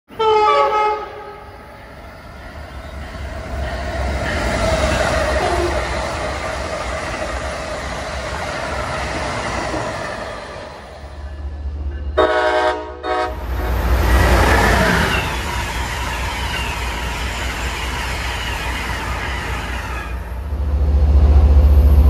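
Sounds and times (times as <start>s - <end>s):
train horn blast: 0.1s - 1.5s, 12.2s - 13.6s
train rushing past: 0.4s - 22.0s.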